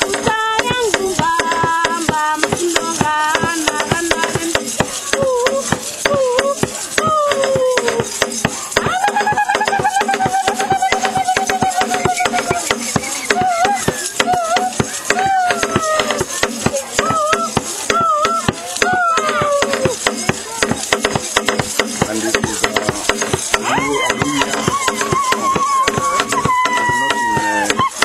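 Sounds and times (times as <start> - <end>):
girls singing: 0.0 - 7.9
fast percussive clatter: 0.0 - 28.0.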